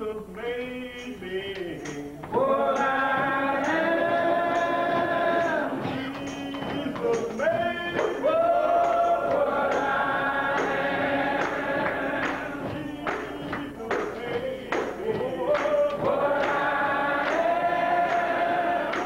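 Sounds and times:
men's choir singing in harmony: 0:01.2 - 0:19.0.

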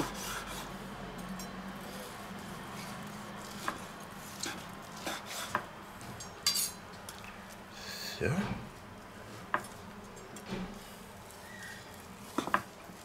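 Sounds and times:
knife slicing roast: 0:00.0 - 0:00.9, 0:01.5 - 0:05.7
faint steady hum: 0:00.0 - 0:13.0.

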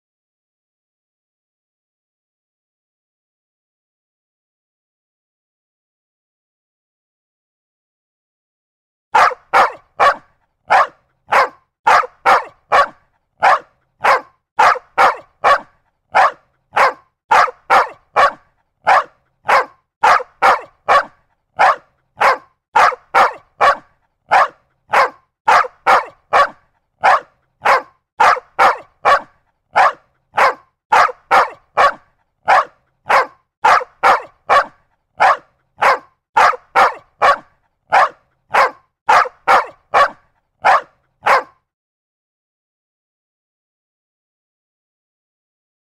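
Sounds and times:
dog barking: 0:09.2 - 0:41.7.

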